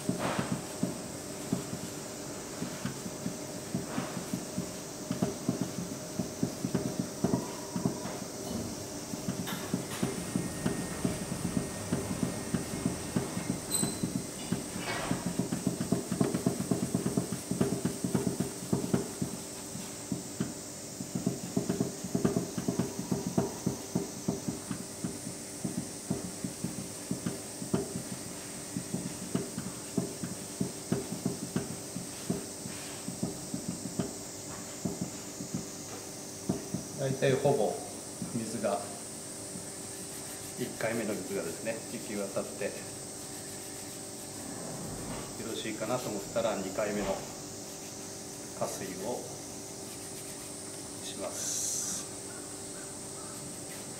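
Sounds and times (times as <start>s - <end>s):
hands rubbing flour in a bowl: 39.6s - 44.4s, 45.4s - 52.1s.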